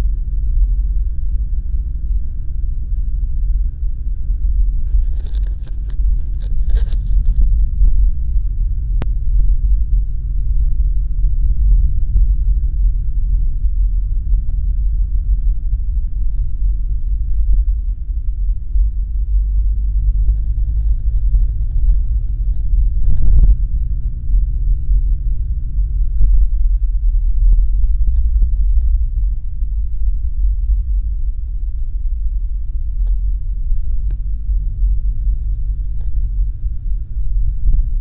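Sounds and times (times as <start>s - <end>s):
car interior road and engine rumble: 0.0s - 38.0s.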